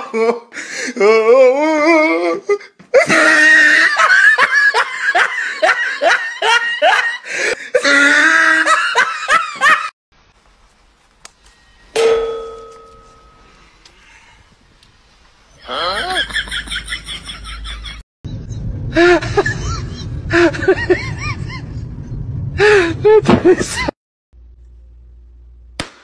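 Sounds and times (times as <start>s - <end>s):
person laughing: 3.0s - 9.9s, 15.6s - 18.0s, 18.9s - 21.9s, 22.6s - 24.0s
ringing hit: 11.9s - 13.6s.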